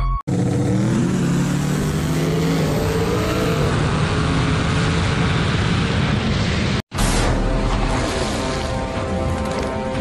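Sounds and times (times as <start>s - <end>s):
wind and road noise: 0.3s - 6.9s.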